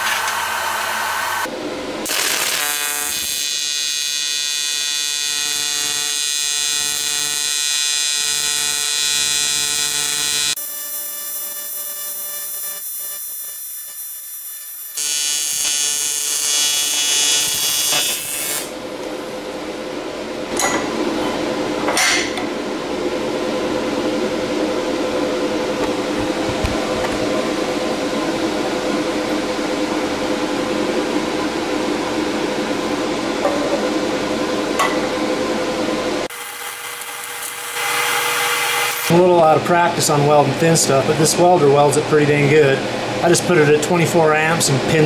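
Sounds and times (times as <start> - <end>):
welding arc buzz: 0.0 - 18.8, 35.8 - 39.8
shop hum: 0.0 - 45.0.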